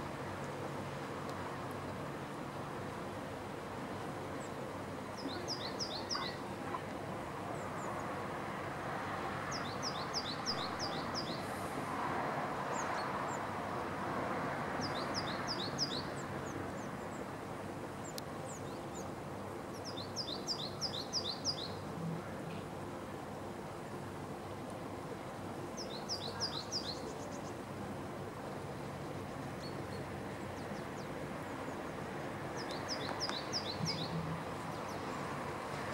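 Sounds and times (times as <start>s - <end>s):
steady background noise: 0.0s - 35.9s
great tit singing: 5.2s - 6.8s, 25.8s - 27.6s, 32.6s - 35.2s.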